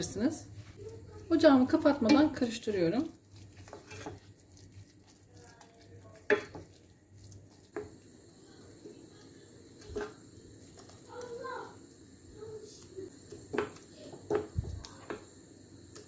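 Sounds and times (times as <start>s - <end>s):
spoon scraping pot: 0.6s - 8.2s, 9.7s - 11.0s, 13.2s - 15.3s
spoon knocking against pot: 2.0s - 2.4s, 6.2s - 6.7s, 13.3s - 15.3s.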